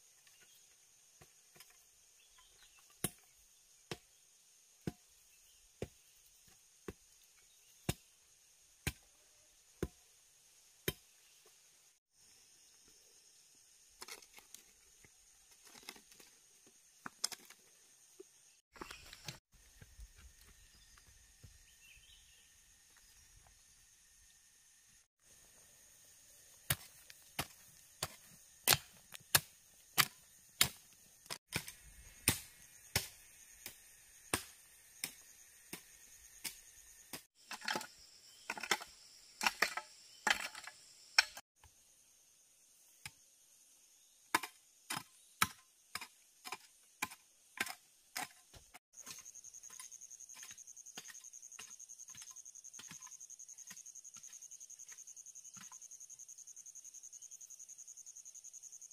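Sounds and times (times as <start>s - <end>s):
insects buzzing: 0.0s - 45.3s, 49.0s - 58.9s
hoe chopping into dry earth: 26.6s - 37.8s.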